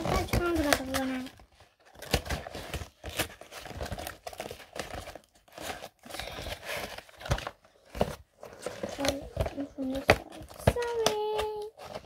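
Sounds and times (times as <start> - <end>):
paper and packaging rustling: 0.0 - 12.0.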